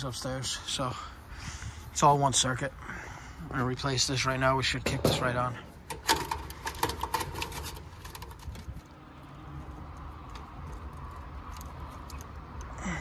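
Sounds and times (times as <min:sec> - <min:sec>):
wire connectors clicking and rattling: 0:04.9 - 0:12.8.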